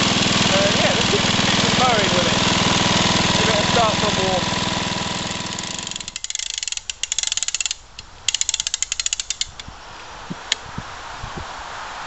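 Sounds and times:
lawn mower engine running: 0.0 - 9.7
starter ratchet clicking: 1.3 - 9.7.

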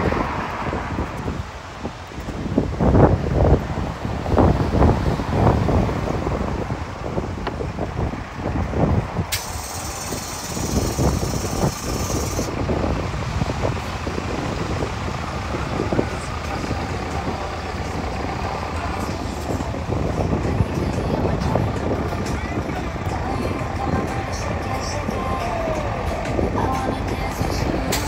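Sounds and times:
heavy vehicle engine rumble: 0.0 - 28.0
street traffic: 0.0 - 28.0
loud hiss: 9.3 - 12.5.

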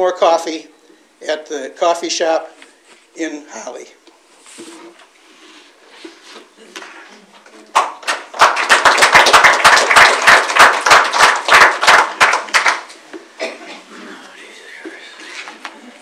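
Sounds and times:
people clapping: 7.6 - 13.2.

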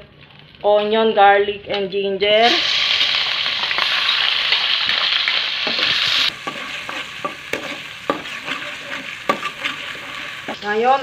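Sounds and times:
paste sizzling in hot oil: 2.4 - 11.0
spatula scraping and tapping wok: 4.6 - 11.0.

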